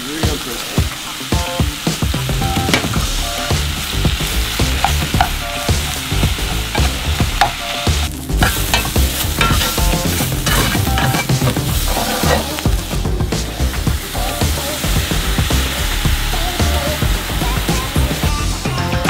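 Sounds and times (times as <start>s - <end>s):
vegetables sizzling in a pan: 0.0s - 19.0s
metal spatula scraping a pan: 8.4s - 12.6s.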